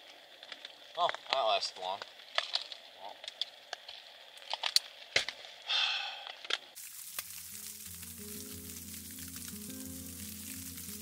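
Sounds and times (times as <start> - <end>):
soft background music: 7.1 - 11.0.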